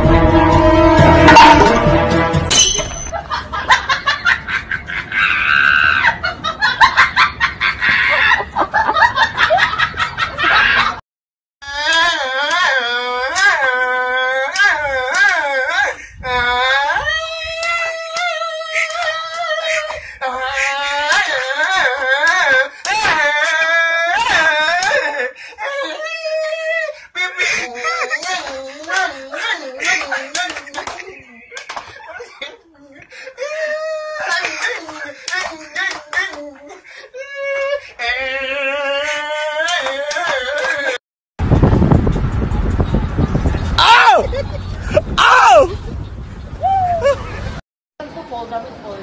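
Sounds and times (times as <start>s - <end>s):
person laughing: 2.9s - 11.0s, 18.5s - 41.0s, 44.0s - 45.9s, 46.7s - 47.6s
person wailing and crying: 11.6s - 41.0s, 43.8s - 44.4s, 46.6s - 47.3s.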